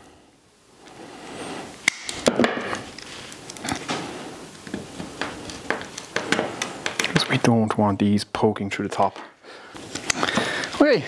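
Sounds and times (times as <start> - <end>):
handling noise: 1.9 - 7.4.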